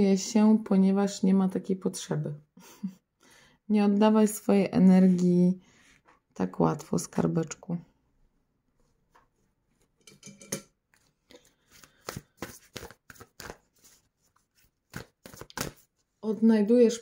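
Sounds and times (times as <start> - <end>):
cards being shuffled: 10.9 - 16.0.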